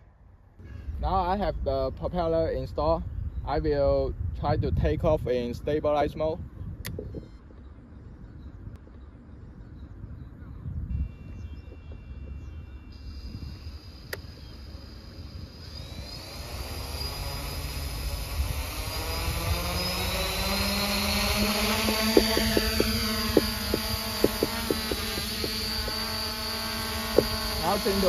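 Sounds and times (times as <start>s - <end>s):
drone motors whining: 10.9s - 28.0s.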